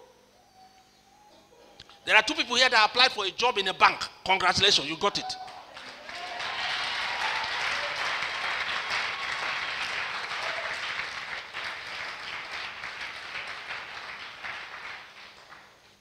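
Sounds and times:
congregation applauding: 0:05.4 - 0:16.0.

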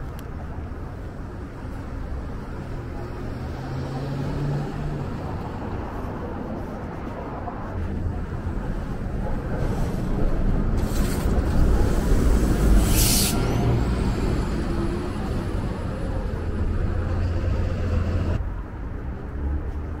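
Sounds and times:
traffic rumble: 0:00.0 - 0:20.0
bus engine running: 0:07.7 - 0:18.4
loud air hiss: 0:11.8 - 0:13.5.

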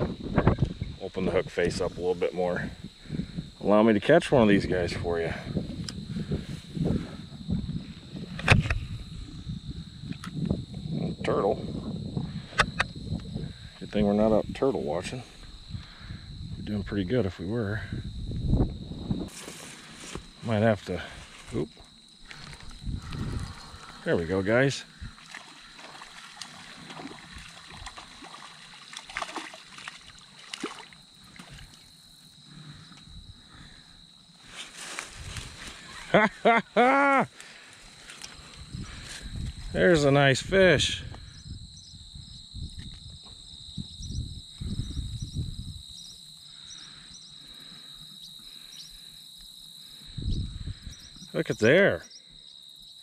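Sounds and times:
insects trilling: 0:00.0 - 0:53.0
fish splashing at water surface: 0:25.1 - 0:31.8
low rustle: 0:34.4 - 0:36.1.

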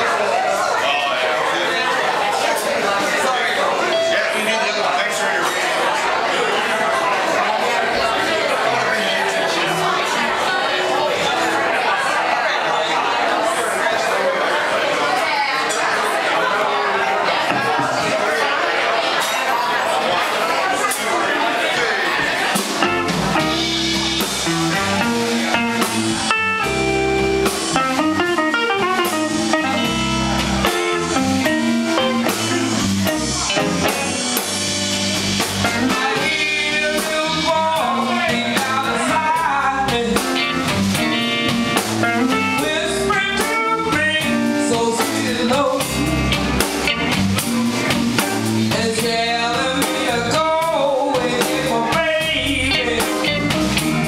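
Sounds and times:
live blues band playing: 0:03.6 - 0:13.3, 0:15.8 - 0:54.0
bending lead guitar line: 0:22.5 - 0:54.0.

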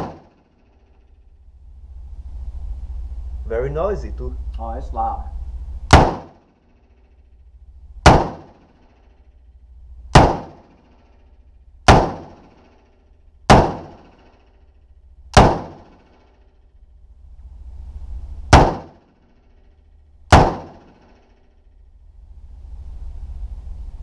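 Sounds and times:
rifle shots echoing indoors: 0:00.0 - 0:01.1, 0:05.9 - 0:07.4, 0:08.0 - 0:09.4, 0:10.1 - 0:16.7, 0:18.5 - 0:19.6, 0:20.3 - 0:21.5.

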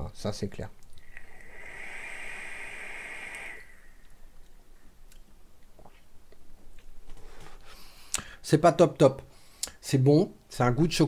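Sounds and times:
breathy exhale: 0:01.0 - 0:04.3
electronic cigarette coil sizzling: 0:01.0 - 0:04.4.

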